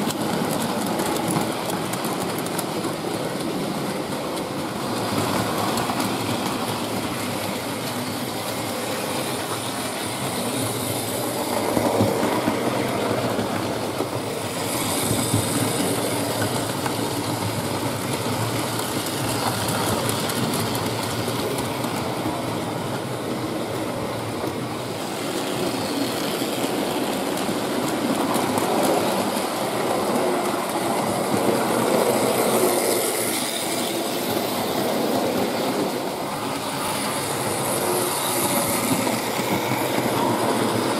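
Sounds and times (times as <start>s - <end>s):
model train wheels clattering on rails: 0.0s - 40.9s.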